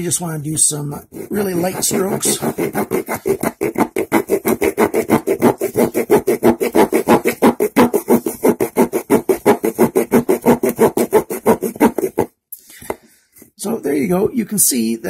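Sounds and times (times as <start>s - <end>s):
small saw sawing wood: 1.0s - 12.3s.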